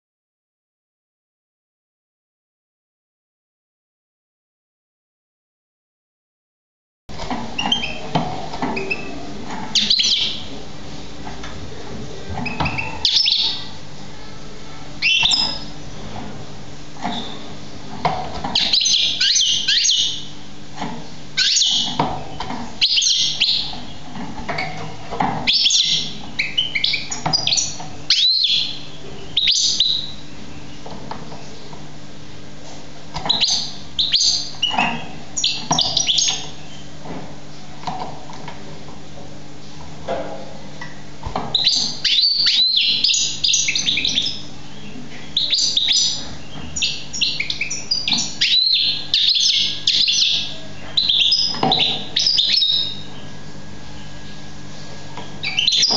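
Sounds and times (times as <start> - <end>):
goldfinch twittering: 12.5 - 13.6, 18.6 - 20.3, 21.4 - 22.0, 22.8 - 24.0, 25.5 - 30.2, 33.3 - 36.8, 41.5 - 53.1, 55.4 - 55.9.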